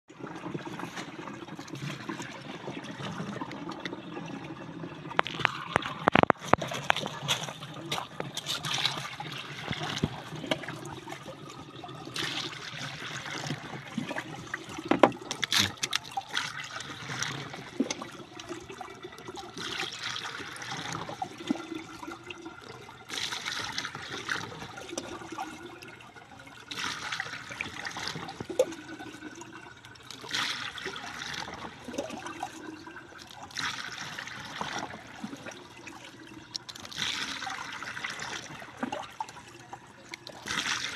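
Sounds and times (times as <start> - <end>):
water pouring into plastic tank: 0.1 - 40.9
plastic knocks: 14.8 - 15.2.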